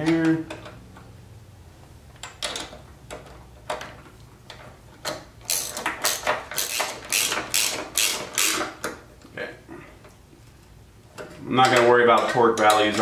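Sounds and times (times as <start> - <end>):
ratchet wrench clicking: 5.4 - 8.8.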